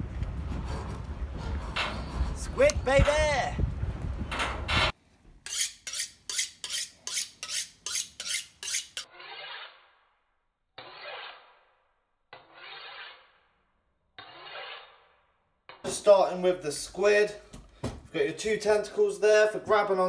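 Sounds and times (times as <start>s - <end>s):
knife scraping sharpening steel: 5.4s - 10.0s, 10.8s - 11.6s, 12.3s - 13.4s, 14.2s - 15.1s.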